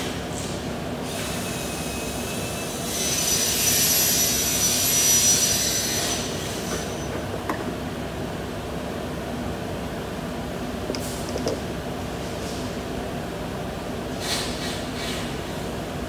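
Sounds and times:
workshop hum: 0.0 - 16.0.

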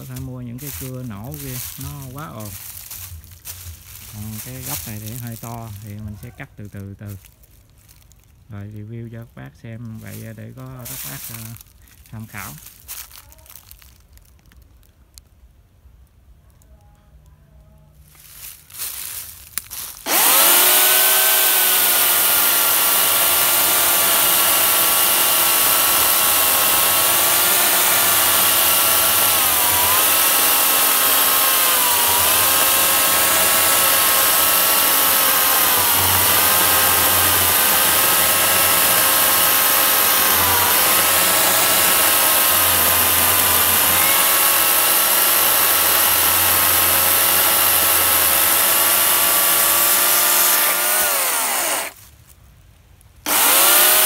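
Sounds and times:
electric chainsaw cutting wood: 0.0 - 6.2, 20.0 - 52.0, 53.2 - 54.0.

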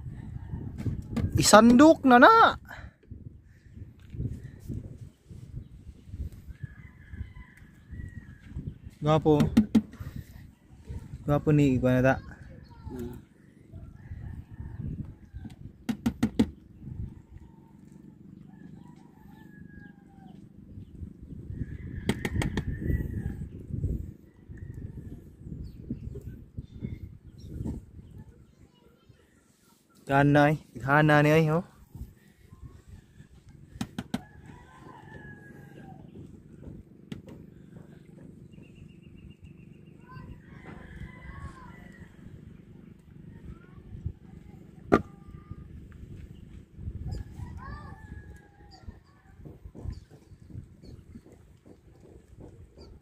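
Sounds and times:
rumble of wind and water: 0.0 - 29.4, 31.7 - 53.0
knocks in a wooden boat: 9.4 - 10.0, 15.8 - 16.6, 22.1 - 22.7, 33.8 - 34.3, 49.3 - 53.0
sharp knocks: 9.4 - 10.0, 15.9 - 16.6
low steady rumble: 31.7 - 53.0
rooster crowing: 34.2 - 36.0.

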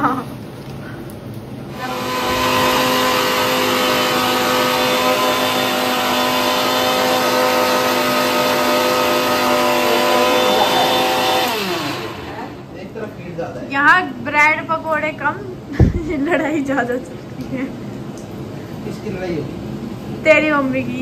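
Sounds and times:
electric mixer grinder whining: 1.7 - 12.7.

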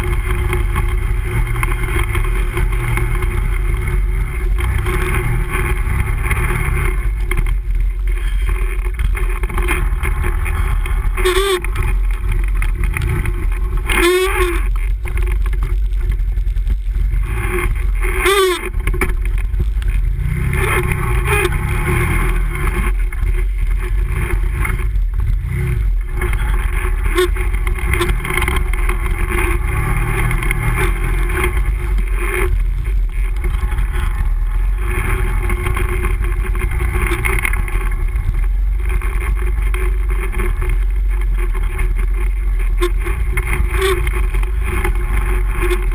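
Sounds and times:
gravel crunching under tyres: 0.0 - 45.9
quad bike engine running: 0.0 - 45.9
wind noise: 0.0 - 45.9
short wavering squeaks: 8.1 - 9.0, 9.7 - 12.0, 13.7 - 14.7, 18.0 - 18.8, 20.6 - 22.2.

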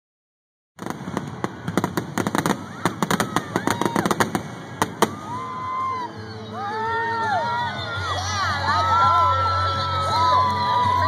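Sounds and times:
fireworks bangs and crackles: 0.8 - 6.0.

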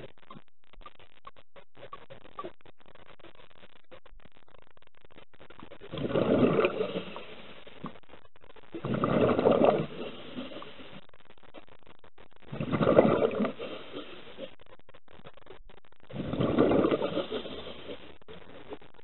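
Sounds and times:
underwater exhaled bubbles: 5.8 - 8.1, 8.7 - 11.1, 12.4 - 14.6, 16.1 - 18.7.

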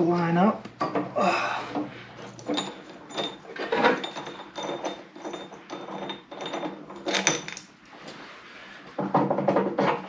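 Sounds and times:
metallic clinks and knocks: 1.8 - 7.7.

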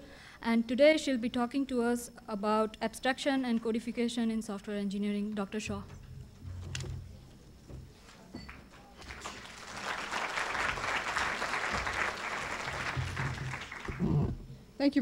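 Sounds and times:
audience applauding: 9.0 - 14.4.

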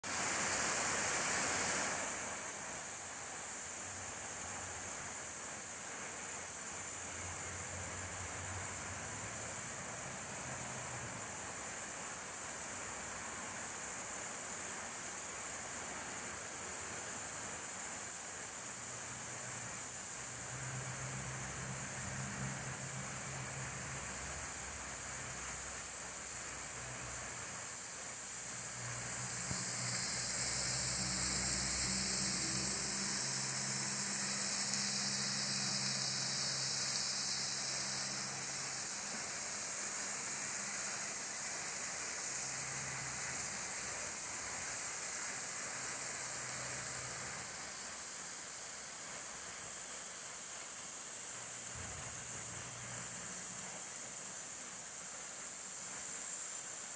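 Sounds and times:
water rushing in creek and waterfall: 0.0 - 56.9.

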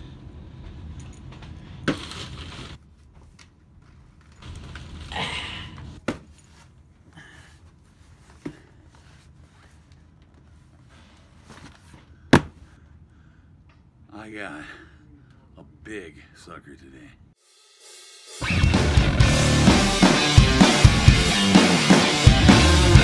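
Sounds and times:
box landing with a thump: 12.3 - 12.6.

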